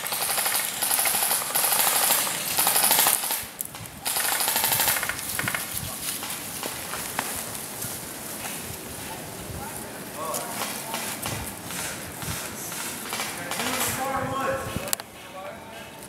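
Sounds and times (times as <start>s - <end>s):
airsoft guns firing: 0.0s - 7.4s, 10.2s - 14.4s.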